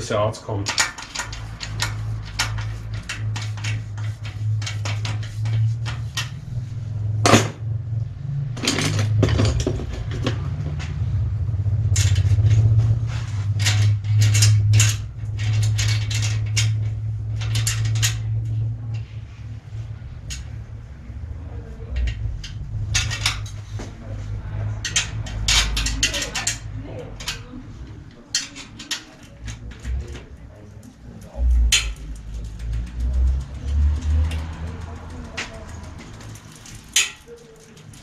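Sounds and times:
steady low hum: 0.0 - 37.0
metallic clicks of hand tools: 0.6 - 6.4, 31.5 - 38.0.

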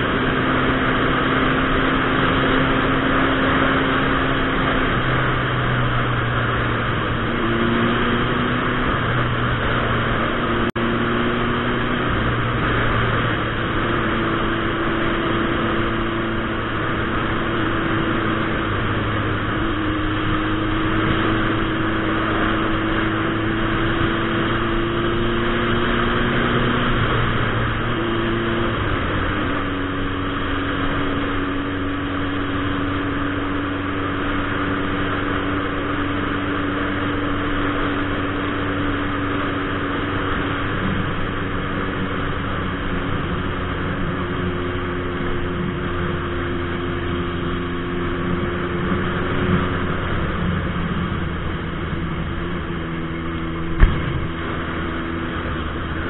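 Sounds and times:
motorcycle engine running: 0.0 - 56.0
wind rush on microphone: 48.1 - 56.0.

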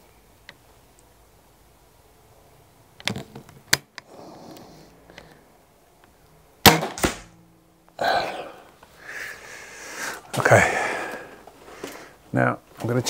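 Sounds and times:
person sniffing: 4.1 - 5.2, 8.0 - 12.2
air rifle shot: 6.6 - 7.4.

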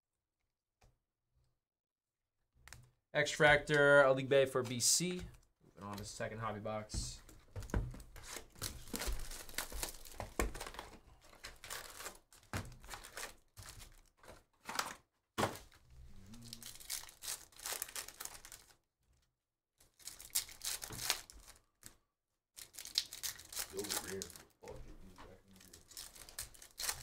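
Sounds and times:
foil packs rustling: 8.2 - 15.8, 16.6 - 18.8, 22.6 - 24.5
foil pack tearing: 16.5 - 18.7, 22.6 - 24.3.

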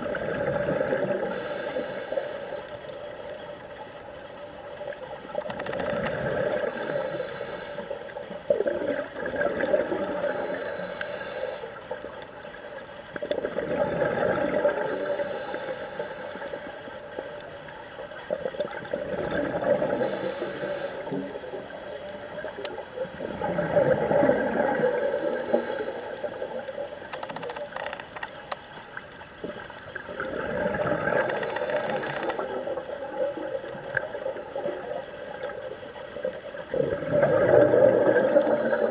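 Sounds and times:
exhaled air bubbles underwater: 0.0 - 1.9, 4.8 - 7.1, 8.2 - 10.6, 13.1 - 15.2, 16.6 - 27.1, 29.4 - 38.9
diver breathing through regulator: 1.2 - 2.8, 6.4 - 8.1, 10.1 - 11.9, 14.6 - 16.7, 19.8 - 21.4, 24.6 - 26.4, 31.1 - 32.5, 38.1 - 38.9.

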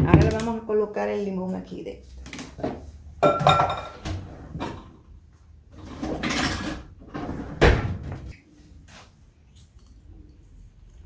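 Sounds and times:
drawer rummaging clatter: 5.8 - 8.0.

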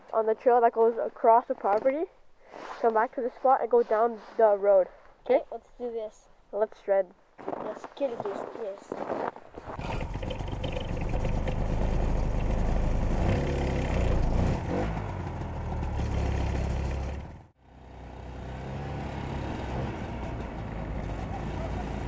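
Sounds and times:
snowmobile engine revving: 9.6 - 17.3, 18.1 - 22.0.

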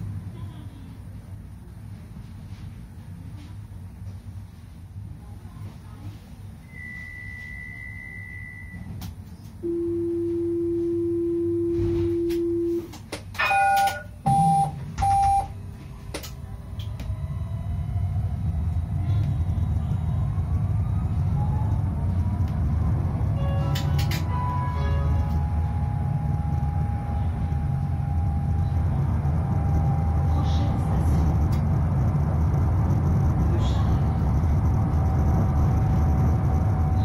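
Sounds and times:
steady low warning tone: 0.0 - 37.0
tram rolling rumble: 0.0 - 37.0
tram warning beeps: 6.6 - 9.0, 9.6 - 15.6, 16.8 - 37.0
faint rising motor whine: 16.5 - 23.7, 24.3 - 37.0.

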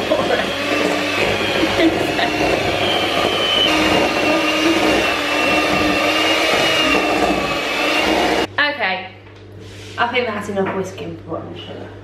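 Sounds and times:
electric hand whisk whining: 0.0 - 8.5.

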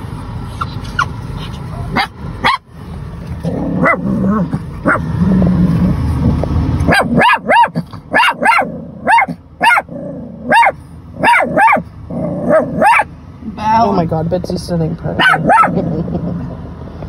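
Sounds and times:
small dog barking: 1.9 - 2.6, 3.8 - 5.1, 6.8 - 13.1, 15.2 - 15.8.

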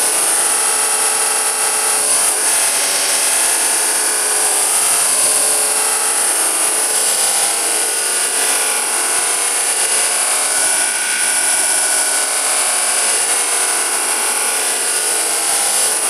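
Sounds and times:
vacuum cleaner running: 0.0 - 16.0.

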